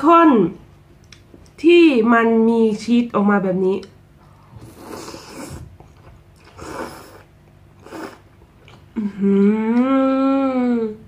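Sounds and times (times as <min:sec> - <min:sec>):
person slurping noodles: 0:04.5 - 0:05.7, 0:06.4 - 0:08.4
person humming mmm: 0:06.5 - 0:08.2, 0:08.9 - 0:11.0.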